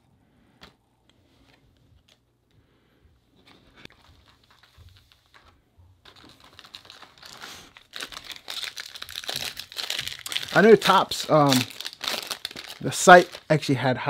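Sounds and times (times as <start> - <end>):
foil wrapper crinkling: 6.0 - 13.8.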